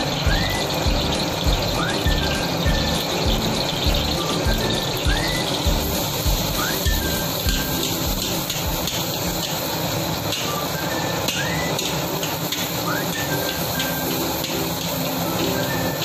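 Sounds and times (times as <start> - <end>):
garlic sizzling in hot oil: 0.0 - 16.0
looped chirping tune: 0.0 - 16.0
spatula stirring in wok: 5.5 - 16.0.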